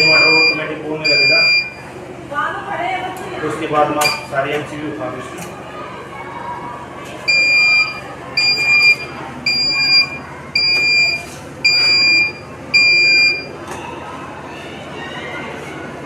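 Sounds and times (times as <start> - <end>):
inverter buzzer beeping: 0.0 - 1.8, 7.3 - 13.6.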